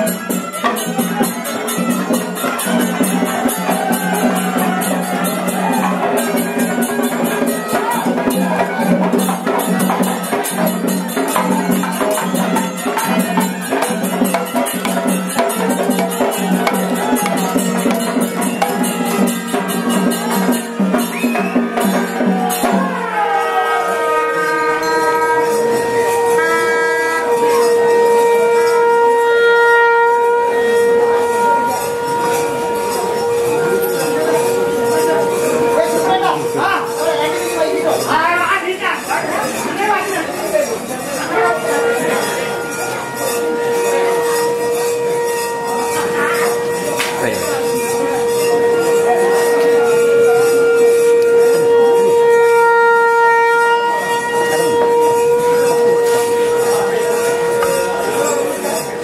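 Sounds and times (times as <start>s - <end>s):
drums playing fast rhythm: 0.0s - 23.3s, 30.9s - 44.5s
hand cymbals: 0.0s - 59.0s
horns holding long notes: 10.4s - 40.4s, 41.2s - 59.0s.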